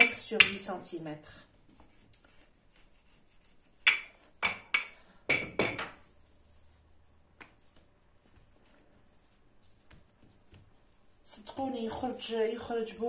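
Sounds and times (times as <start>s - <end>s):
rolling pin knocking on stone counter: 0.4s - 0.6s, 3.8s - 6.0s.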